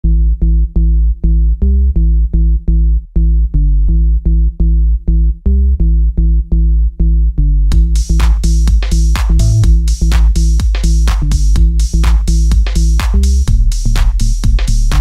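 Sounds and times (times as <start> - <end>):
synth and drum machine beat: 7.7 - 13.8.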